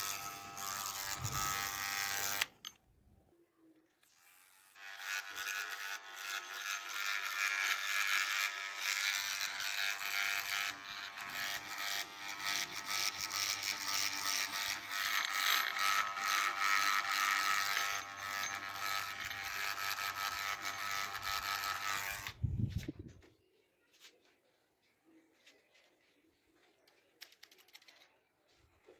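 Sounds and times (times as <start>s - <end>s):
electric beard trimmer running: 0.0s - 2.7s, 4.0s - 22.4s.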